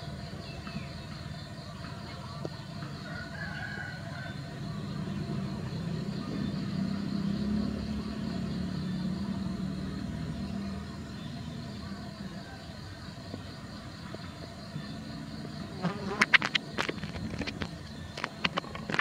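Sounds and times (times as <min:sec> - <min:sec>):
low engine hum: 0:03.9 - 0:19.0.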